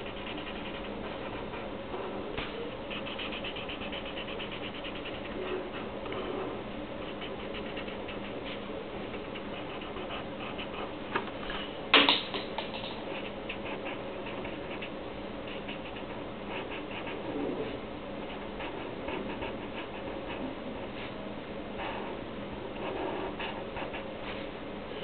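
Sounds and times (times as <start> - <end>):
marker pen scratching on paper: 0.0 - 2.1, 2.8 - 10.9, 13.0 - 17.3, 18.2 - 20.4
steady low hum: 0.0 - 25.0.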